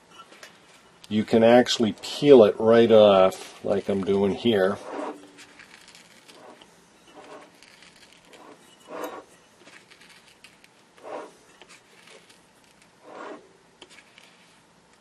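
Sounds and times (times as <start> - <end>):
scraping glue off speaker frame: 3.3 - 15.0.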